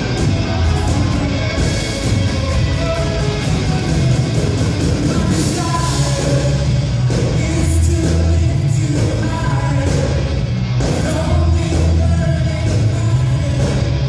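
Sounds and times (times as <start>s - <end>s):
people singing: 0.0s - 13.9s
rock band playing: 0.0s - 14.0s.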